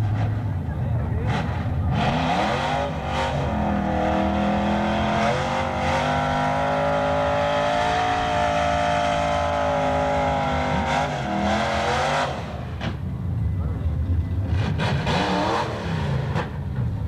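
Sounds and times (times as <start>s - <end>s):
car engine at high revs: 0.0s - 13.0s, 14.4s - 17.0s.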